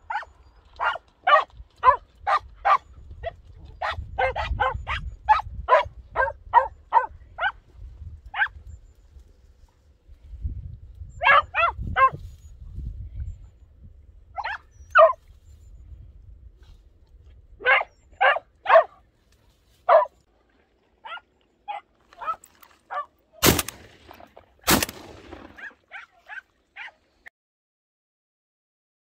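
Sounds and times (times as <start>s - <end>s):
dogs yelping and barking: 0.0s - 2.8s, 3.8s - 7.6s, 11.2s - 12.2s, 14.4s - 15.2s, 17.6s - 19.0s, 19.9s - 20.1s, 21.0s - 23.1s, 25.5s - 27.0s
gunshots with echo: 23.4s - 25.6s.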